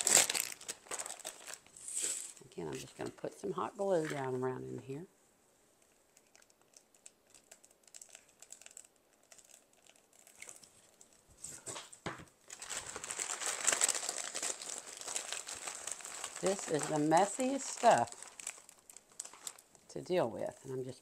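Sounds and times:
plastic bag crinkling: 0.0s - 5.0s, 6.1s - 21.0s.

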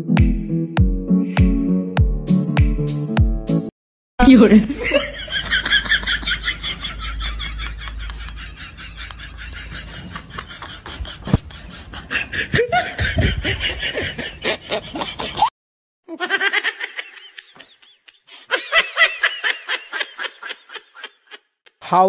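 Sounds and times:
people laughing: 4.6s - 15.5s, 16.1s - 21.8s.

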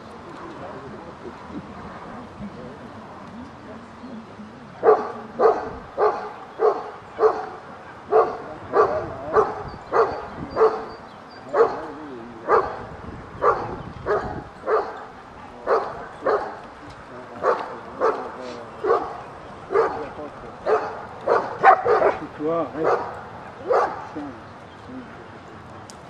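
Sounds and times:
dog barking: 4.8s - 11.9s, 12.5s - 16.6s, 17.4s - 22.2s, 22.8s - 24.1s.

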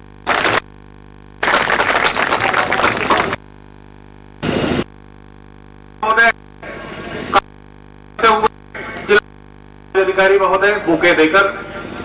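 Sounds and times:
low electrical hum: 0.0s - 12.0s
audience applause: 1.4s - 3.4s.

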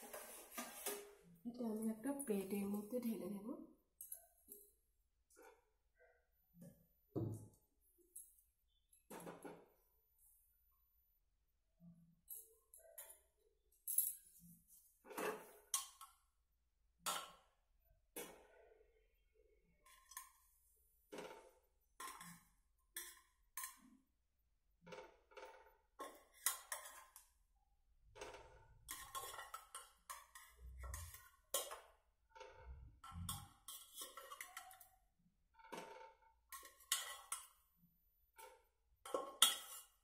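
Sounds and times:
metal kitchenware clinking: 28.2s - 35.0s, 35.7s - 37.6s, 38.4s - 40.0s.

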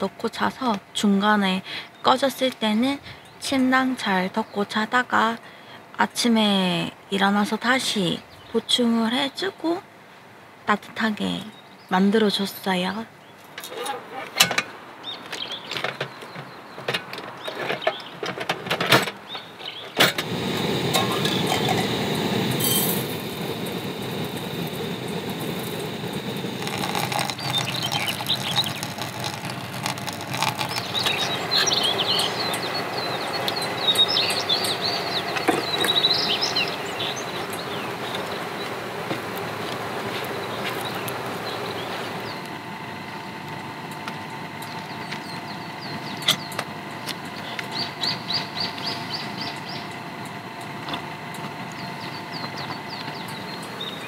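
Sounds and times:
birds chirping: 10.9s - 18.4s, 19.2s - 54.0s
gas stove burner rushing: 20.0s - 54.0s.

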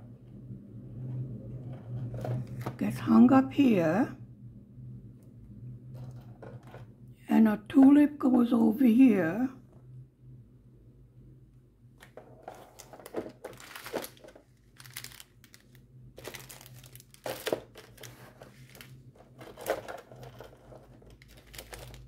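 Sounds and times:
plastic packaging crinkling: 12.1s - 22.0s.

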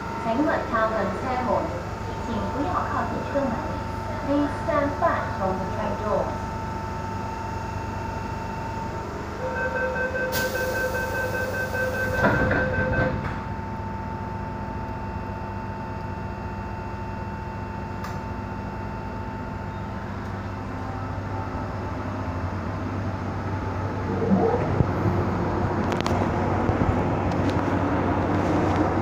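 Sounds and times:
train equipment humming: 0.0s - 15.5s, 16.2s - 29.0s
train door warning beeps: 9.4s - 14.1s
sliding doors shutting with a thud: 12.0s - 13.4s.

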